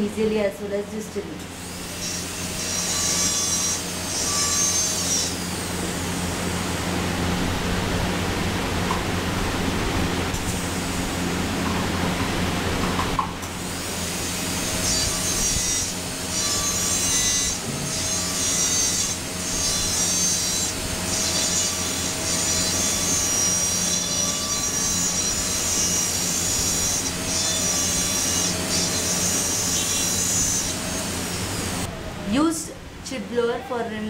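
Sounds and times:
dental drill whining: 0:01.5 - 0:05.9, 0:13.6 - 0:31.9.

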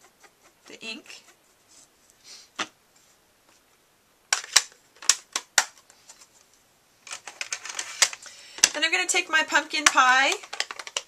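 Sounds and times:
faint brushing: 0:00.0 - 0:03.8
plastic cases clicking and tapping: 0:04.3 - 0:05.9, 0:07.1 - 0:08.8, 0:09.8 - 0:11.0.

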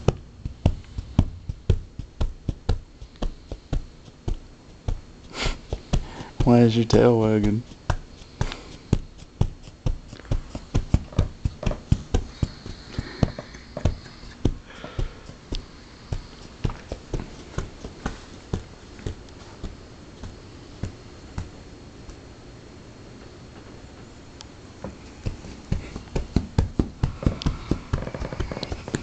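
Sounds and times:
dog tail thumping on cushion: 0:00.0 - 0:06.5, 0:07.4 - 0:22.2, 0:24.8 - 0:29.0.

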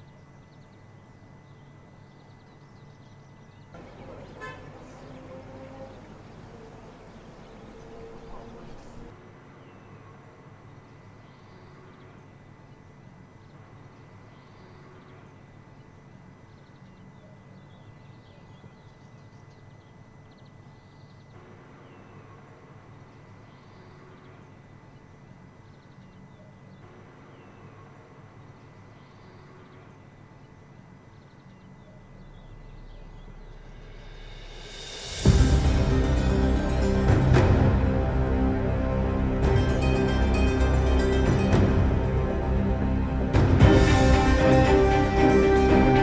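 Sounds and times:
distant bird chirps: 0:00.0 - 0:35.2
steady low hum: 0:00.0 - 0:46.0
low rumble: 0:32.0 - 0:46.0.

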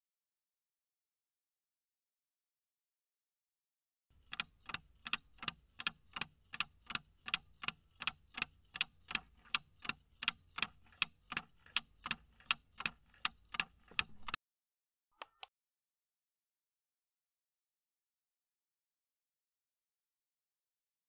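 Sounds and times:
clock ticking: 0:04.2 - 0:14.4.

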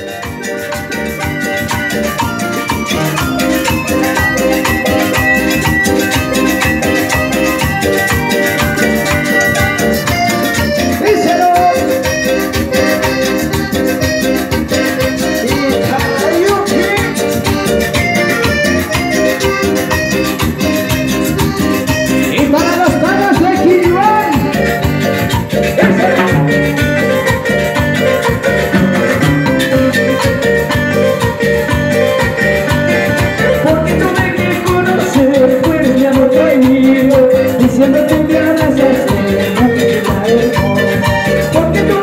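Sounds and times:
electronic keyboard: 0:00.0 - 0:42.0
latin dance band playing: 0:00.0 - 0:42.0
timbales and shakers: 0:00.0 - 0:42.0
person singing into microphone: 0:11.0 - 0:12.2, 0:25.6 - 0:27.3, 0:33.3 - 0:42.0.

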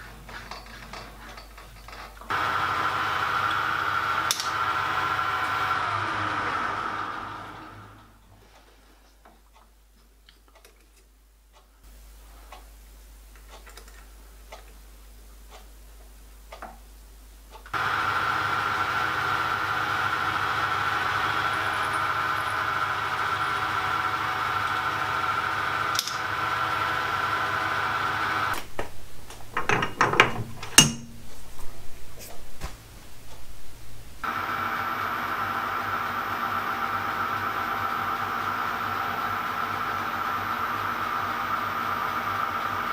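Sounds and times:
irregular clicking and scraping: 0:00.0 - 0:02.3, 0:08.3 - 0:11.8, 0:13.3 - 0:14.8
lathe motor and gear whine: 0:02.3 - 0:08.2, 0:17.8 - 0:28.6, 0:34.2 - 0:42.9
drill bit clicks in chuck: 0:04.3 - 0:04.6, 0:25.9 - 0:26.2.

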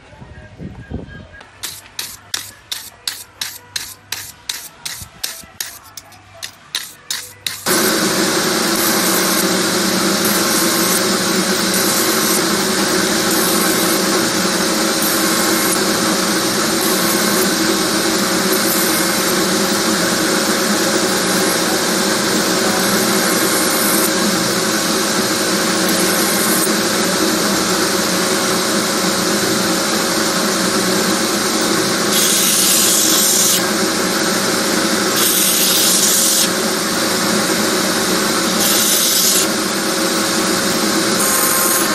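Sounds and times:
belt grinder grinding steel: 0:01.6 - 0:41.9.

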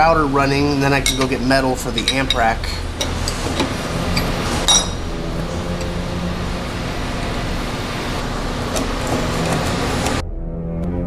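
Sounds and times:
steady hum and hiss: 0:00.0 - 0:10.2
wrenches clinking on metal: 0:00.8 - 0:05.1.

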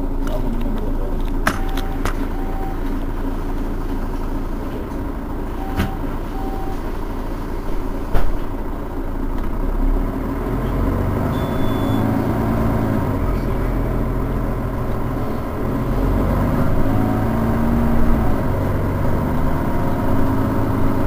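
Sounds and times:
diesel bus engine idling: 0:00.0 - 0:21.0
short beeps: 0:01.5 - 0:03.0, 0:05.6 - 0:06.9, 0:11.3 - 0:12.2.

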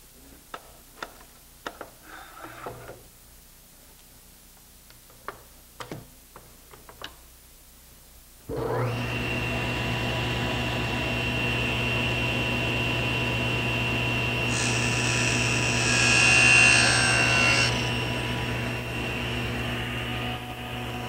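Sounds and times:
saw cutting wood: 0:14.5 - 0:21.0.

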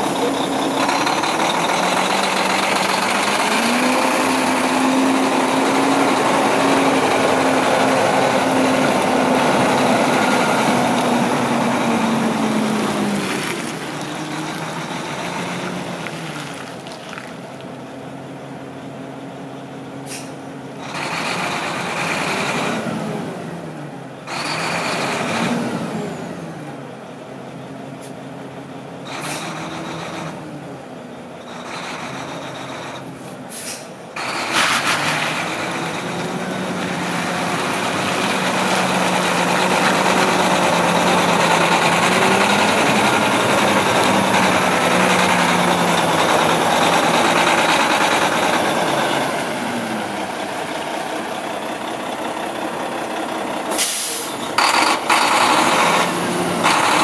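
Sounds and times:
diesel truck engine revving: 0:00.0 - 0:17.0, 0:18.2 - 0:57.0
air brake hisses: 0:20.0 - 0:20.4, 0:33.2 - 0:34.0, 0:53.7 - 0:54.4.

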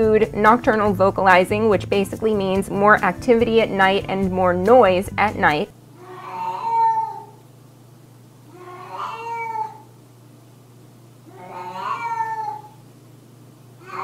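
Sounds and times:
cat yowling: 0:06.0 - 0:07.4, 0:08.5 - 0:10.0, 0:11.3 - 0:12.8, 0:13.8 - 0:14.0.

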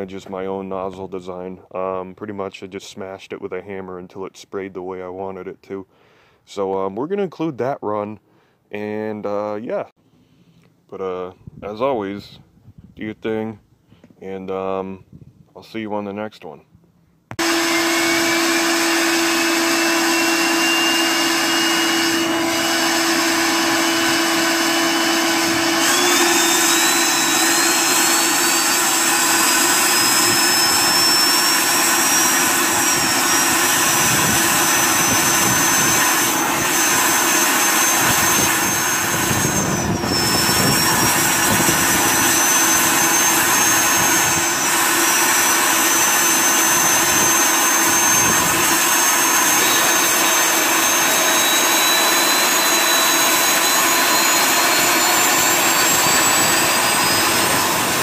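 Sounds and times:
turbo high whine: 0:17.3 - 0:58.0
burner rushing roar: 0:17.4 - 0:58.0.

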